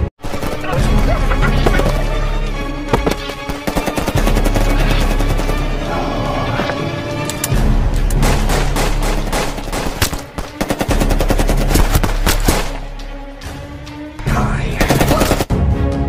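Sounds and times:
dramatic music: 0.0 - 16.0
rapid gunfire and impacts: 0.2 - 1.1, 3.4 - 5.7, 8.2 - 12.9, 14.8 - 15.5.

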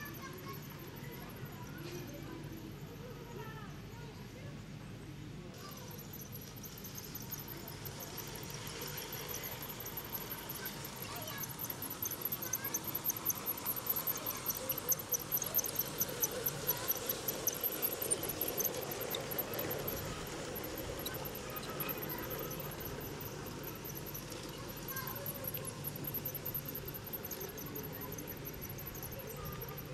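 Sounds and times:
faint high ticking: 5.6 - 29.9
train wheels clicking over rail joints: 5.6 - 29.9.

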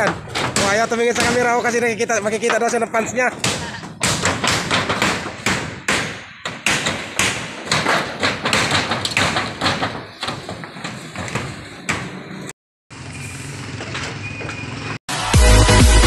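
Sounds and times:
hammer on corrugated metal roof: 0.0 - 12.5.

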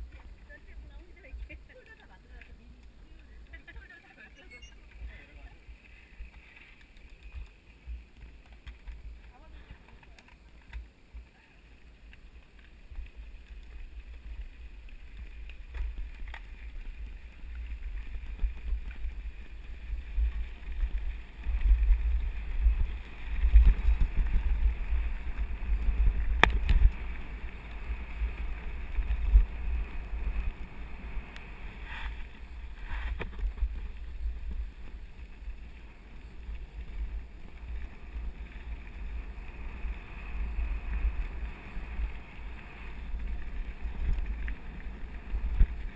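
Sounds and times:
bike rattling over gravel: 0.0 - 45.9
sharp clicks from bumps: 0.0 - 45.9
wind buffeting microphone: 17.0 - 35.6.

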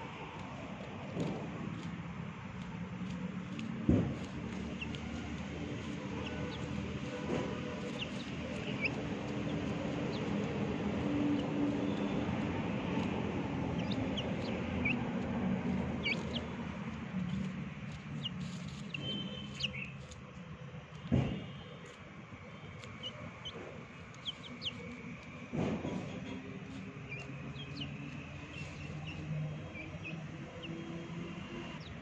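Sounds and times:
low engine-like hum: 0.0 - 32.0
high bird chirps: 15.7 - 16.6, 17.2 - 20.2, 22.8 - 25.2, 26.0 - 30.8.

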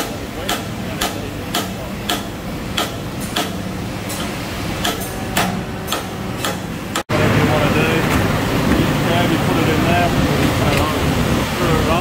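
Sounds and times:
hammer striking steel: 0.0 - 7.0
factory machinery hum: 0.0 - 12.0.

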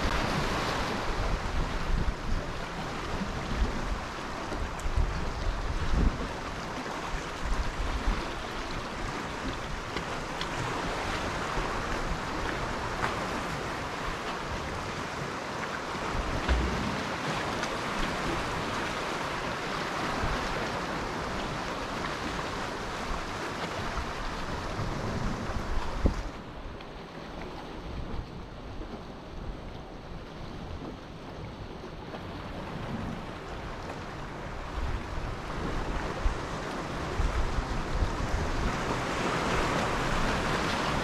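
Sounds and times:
wind buffeting microphone: 0.0 - 14.9, 20.0 - 26.4, 32.4 - 41.0
waves breaking on shore: 0.0 - 41.0.

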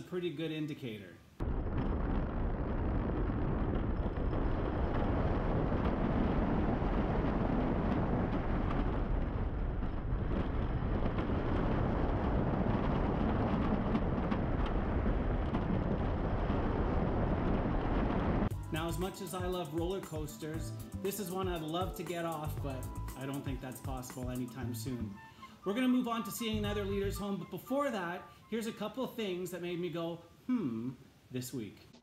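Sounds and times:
wind rushing over microphone: 1.4 - 18.5
roller coaster on wooden track: 3.2 - 18.5.

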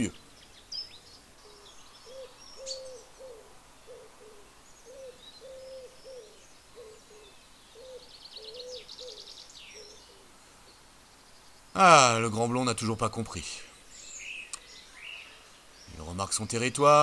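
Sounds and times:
songbirds chirping: 0.0 - 17.0
pigeon cooing: 2.1 - 9.2.

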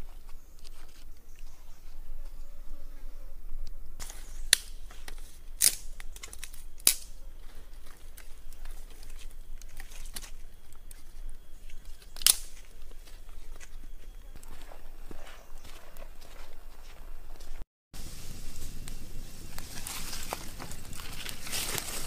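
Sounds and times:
dry sticks snapping: 3.6 - 14.6, 18.8 - 22.0.

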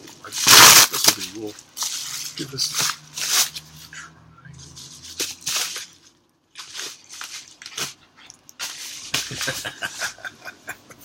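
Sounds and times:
paper envelope ripping and rustling: 0.0 - 3.8, 4.7 - 8.0.

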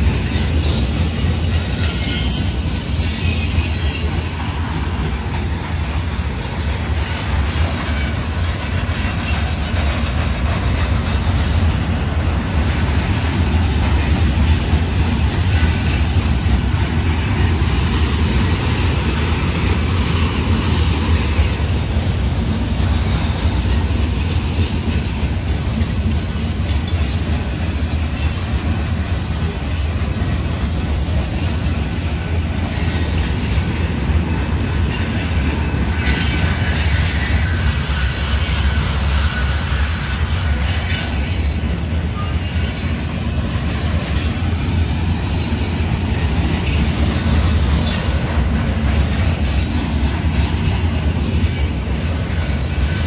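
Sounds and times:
train wheels rumbling on rail: 0.0 - 53.0
high-pitched wheel squeal: 0.2 - 4.4, 34.9 - 44.5.

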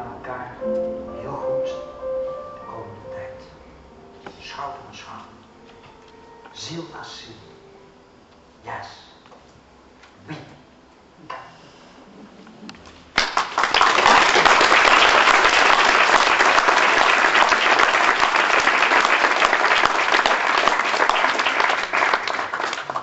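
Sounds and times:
audience applauding: 13.1 - 23.0.

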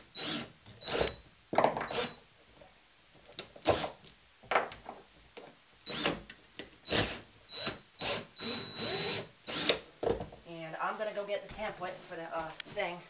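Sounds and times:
drill motor whining: 0.2 - 1.2, 1.9 - 2.2, 6.9 - 9.8.

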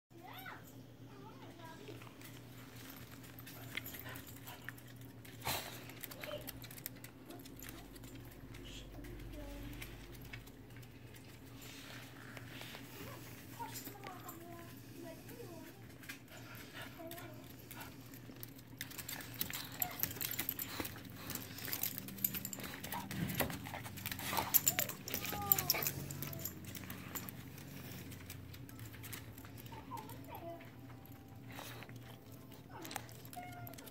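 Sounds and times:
dog claws clicking on tile: 3.2 - 11.5, 16.0 - 33.9.

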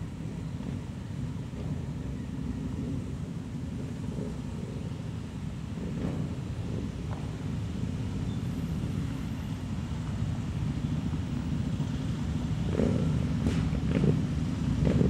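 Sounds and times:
motorcycles riding past: 0.0 - 15.0
motorcycle throttle bursts: 12.3 - 15.0.

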